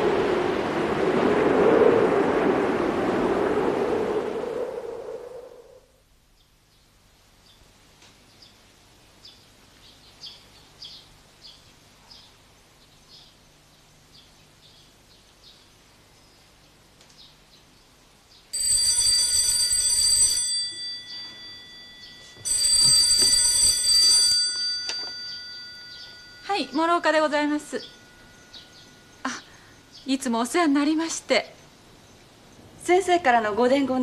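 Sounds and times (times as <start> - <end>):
telephone bell ringing: 18.6 - 29.6
faint high chirping: 20.8 - 22.9, 24.6 - 32.8.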